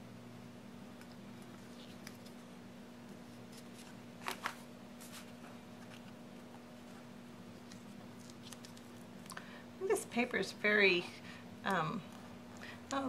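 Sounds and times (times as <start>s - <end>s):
low steady hum: 0.0s - 13.0s
paper rustling: 1.4s - 2.5s, 3.1s - 9.0s.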